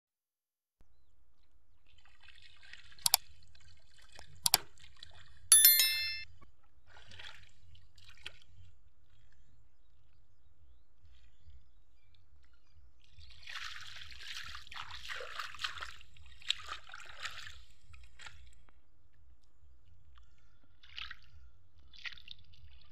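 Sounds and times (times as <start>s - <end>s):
water splashing and trickling: 1.9s - 5.2s, 13.4s - 18.5s
ringing bell chime: 5.5s - 6.3s.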